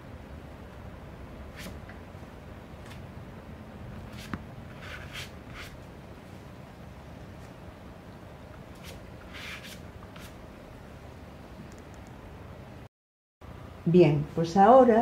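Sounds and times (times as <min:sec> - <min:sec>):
low steady hum: 0:00.0 - 0:15.0
brush swishing on paper: 0:04.1 - 0:05.8, 0:08.7 - 0:10.4.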